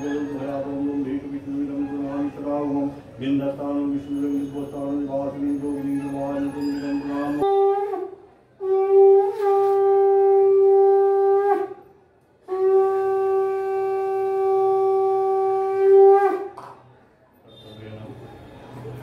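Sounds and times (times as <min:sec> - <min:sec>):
conch shell blasts: 0:07.4 - 0:11.8, 0:12.5 - 0:16.8.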